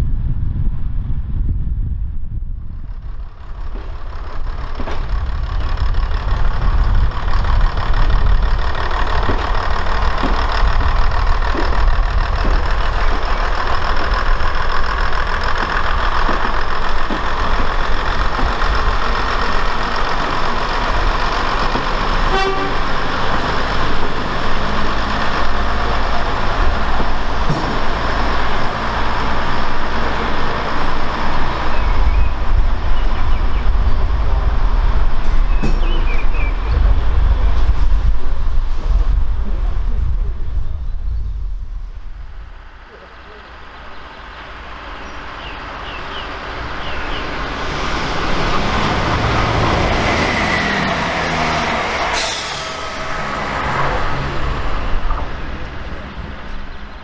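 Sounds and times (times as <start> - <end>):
diesel engines rumbling: 0.0 - 57.0
train horn toots: 22.2 - 23.2.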